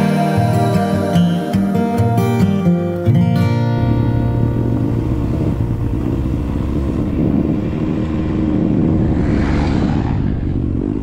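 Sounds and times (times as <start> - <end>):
tyres on gravel road: 3.6 - 11.0
vehicle engine rumbling: 3.6 - 11.0.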